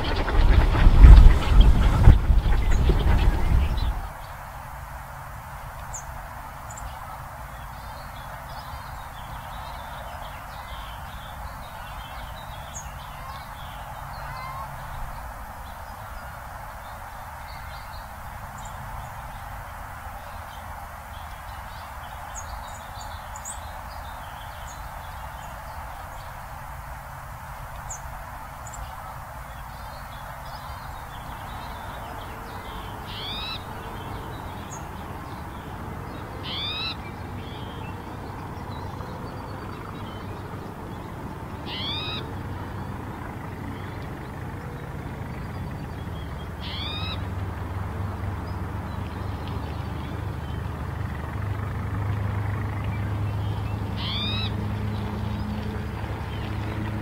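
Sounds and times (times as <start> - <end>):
low rumble: 0.0 - 4.2
bird buzzy mewing call: 8.3 - 17.0, 27.8 - 39.6, 41.5 - 43.0, 46.4 - 47.3, 53.8 - 54.7.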